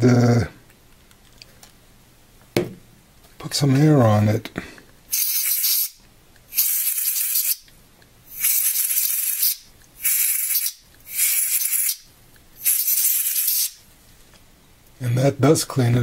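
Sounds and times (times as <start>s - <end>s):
compressed air hissing: 5.1s - 7.6s, 8.3s - 13.8s.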